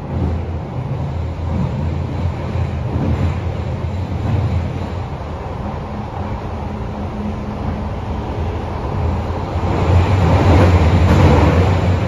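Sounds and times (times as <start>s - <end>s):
subway train rumbling: 0.0s - 12.0s.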